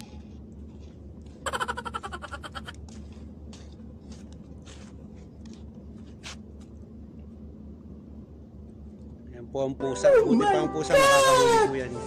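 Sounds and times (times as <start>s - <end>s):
low outdoor rumble: 0.0s - 12.0s
burst of laughter: 1.5s - 2.8s
faint scuffs and clicks: 2.8s - 6.8s.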